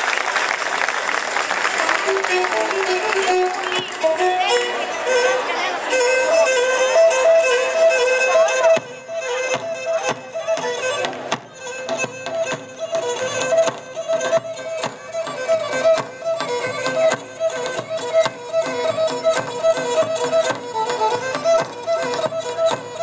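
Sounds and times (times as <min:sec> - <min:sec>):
large drum beating rhythm: 0:08.7 - 0:23.0.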